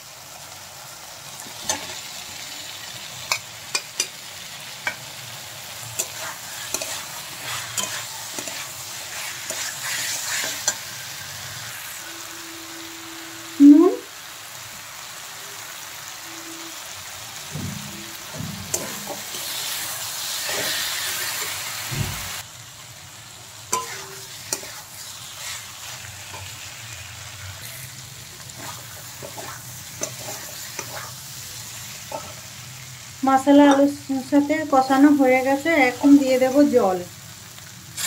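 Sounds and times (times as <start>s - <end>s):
food sizzling in a pan: 0.0s - 38.0s
spatula scraping a metal pan: 6.0s - 12.0s, 18.7s - 21.7s, 23.7s - 26.6s, 27.6s - 32.5s.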